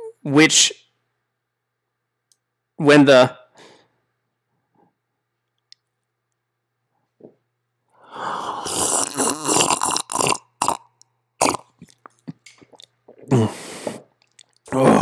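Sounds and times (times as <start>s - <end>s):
man burping loudly: 8.6s - 12.0s, 14.7s - 15.0s.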